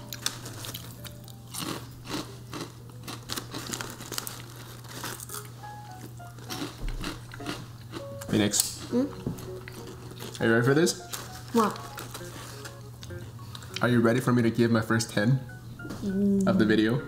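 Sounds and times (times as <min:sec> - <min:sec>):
crackers crunching: 0:00.0 - 0:14.0
quiet background music: 0:00.0 - 0:17.0
plastic wrapper crinkling: 0:03.2 - 0:05.5, 0:10.9 - 0:12.8.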